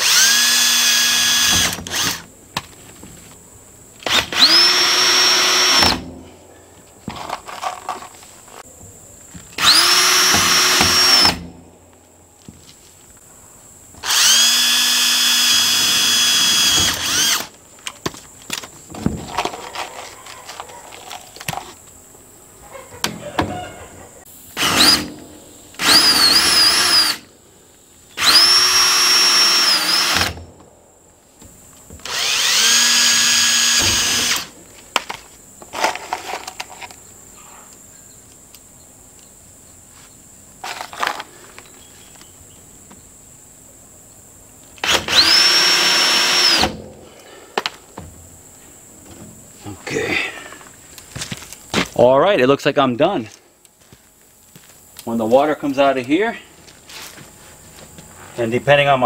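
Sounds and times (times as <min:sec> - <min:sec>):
cordless drill whirring: 0:00.0 - 0:02.2, 0:04.0 - 0:06.0, 0:09.6 - 0:11.5, 0:14.0 - 0:17.5, 0:24.6 - 0:25.1, 0:25.8 - 0:27.3, 0:28.2 - 0:30.4, 0:32.0 - 0:34.5, 0:44.8 - 0:46.7.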